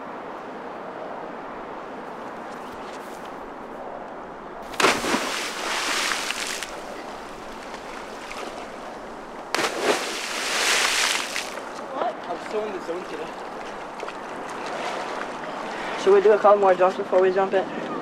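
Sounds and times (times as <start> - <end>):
body splashing into river water: 4.6 - 11.7.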